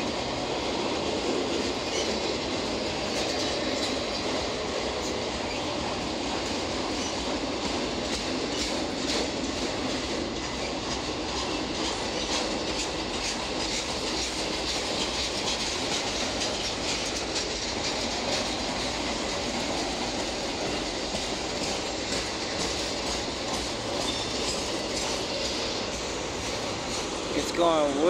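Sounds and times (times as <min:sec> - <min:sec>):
freight train rolling past: 0:00.0 - 0:28.0
wheels clicking over rail joints: 0:00.1 - 0:28.0.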